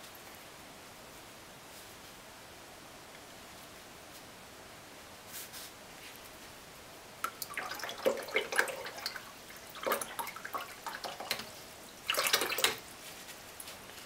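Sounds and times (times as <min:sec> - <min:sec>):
brush splashing in water jar: 0:07.3 - 0:12.8.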